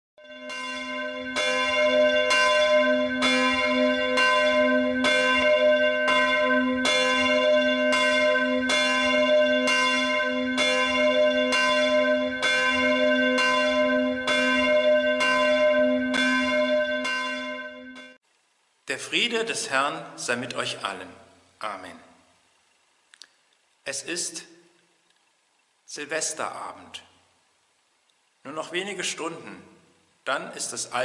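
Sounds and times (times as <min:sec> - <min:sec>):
church bell tolling: 0:00.2 - 0:18.2.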